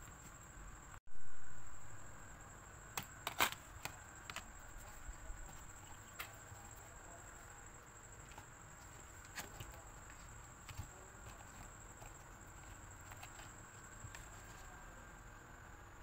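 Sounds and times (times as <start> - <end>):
faint high-pitched tone: 1.1 - 2.8.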